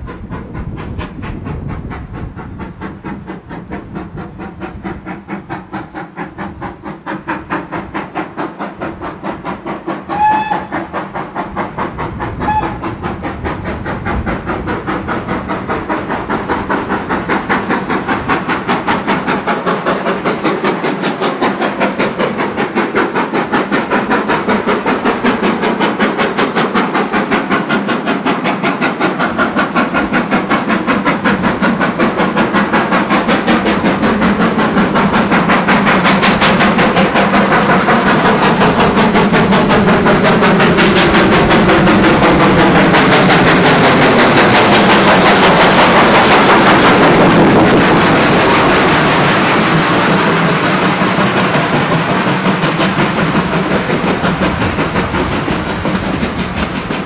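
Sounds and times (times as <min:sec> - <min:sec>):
steam locomotive exhaust beating: 0:00.0 - 0:57.0
coaches clattering over rails: 0:27.6 - 0:57.0.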